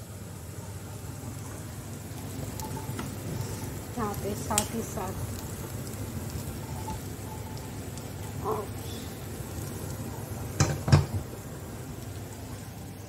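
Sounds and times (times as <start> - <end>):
gas burner hissing: 0.0 - 13.0
metal pot clacking on grate: 10.6 - 11.2.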